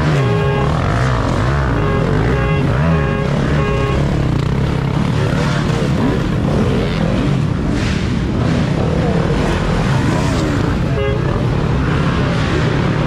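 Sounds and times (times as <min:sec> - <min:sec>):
dirt bike engines revving: 0:00.0 - 0:13.0.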